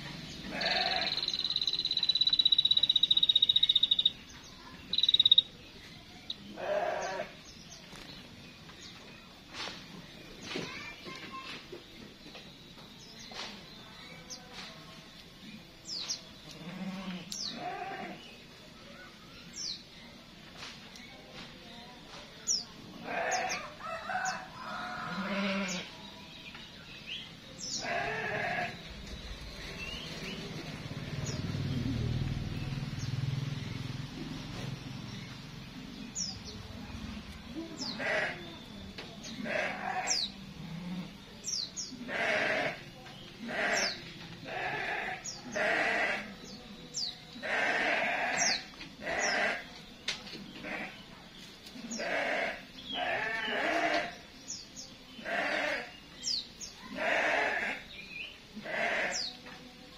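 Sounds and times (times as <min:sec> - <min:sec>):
small birds chirping: 0:00.0 - 0:59.9
goats bleating: 0:00.5 - 0:01.3, 0:06.6 - 0:07.3, 0:25.1 - 0:25.9, 0:27.8 - 0:28.8, 0:37.9 - 0:38.4, 0:39.4 - 0:41.1, 0:42.0 - 0:42.8, 0:43.5 - 0:46.3, 0:47.4 - 0:48.4, 0:49.0 - 0:49.7, 0:51.8 - 0:54.1, 0:55.2 - 0:55.9, 0:56.9 - 0:57.8, 0:58.6 - 0:59.3.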